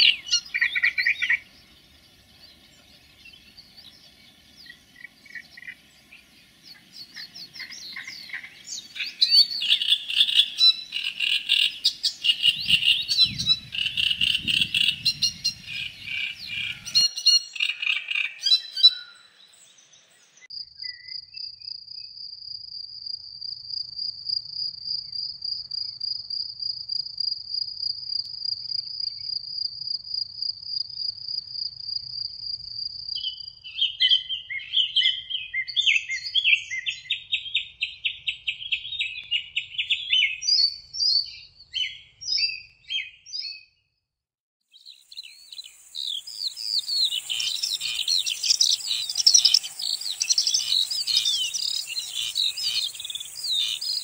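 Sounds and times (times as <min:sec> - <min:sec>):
songbirds singing: 0:00.0 - 0:22.1, 0:33.1 - 0:43.9, 0:44.7 - 0:54.0
high insect chirring: 0:44.9 - 0:54.0.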